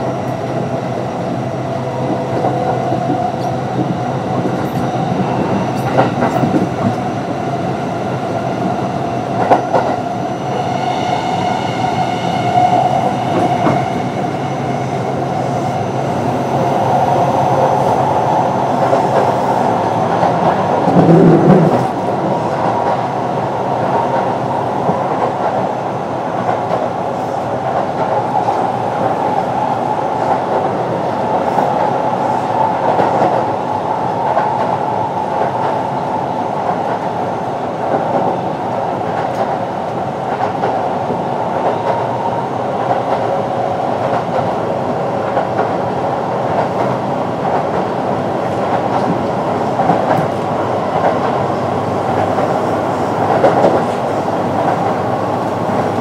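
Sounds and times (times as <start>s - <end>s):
train wheels rumbling on rail: 0.0s - 56.0s
rail-joint clicks: 2.0s - 7.1s, 48.5s - 51.5s, 53.2s - 56.0s.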